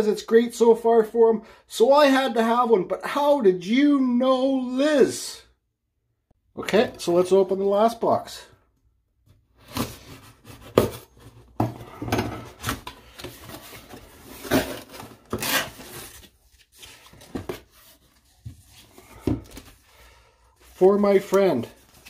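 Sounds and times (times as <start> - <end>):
cardboard packaging rustling: 9.6 - 22.0.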